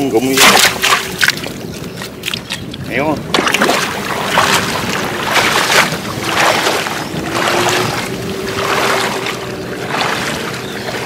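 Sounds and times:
legs swishing through water: 0:00.2 - 0:11.0
water sloshing and splashing: 0:00.2 - 0:11.0
faint steady drone: 0:03.9 - 0:11.0.

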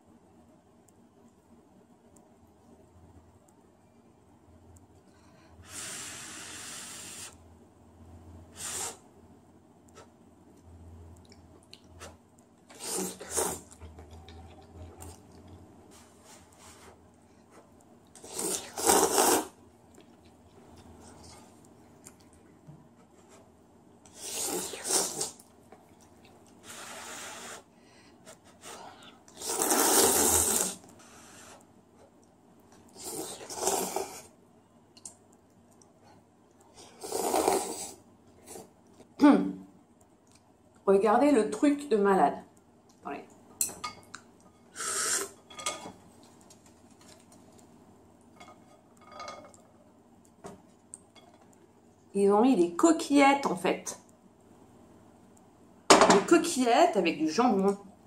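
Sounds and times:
person slurping noodles: 0:12.7 - 0:13.8, 0:18.2 - 0:19.6, 0:24.1 - 0:25.4, 0:29.3 - 0:31.4, 0:32.9 - 0:34.3, 0:36.8 - 0:38.7, 0:44.7 - 0:45.4.

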